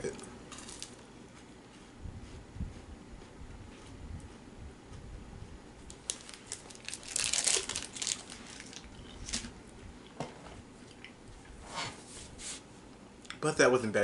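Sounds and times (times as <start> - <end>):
plastic wrapper crinkling: 0.5 - 1.0, 5.9 - 9.6.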